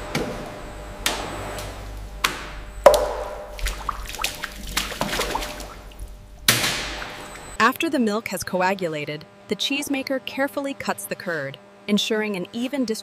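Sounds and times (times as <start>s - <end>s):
sharp knocks on metal vat: 2.9s - 3.6s
whey splashing and dripping: 2.9s - 7.6s.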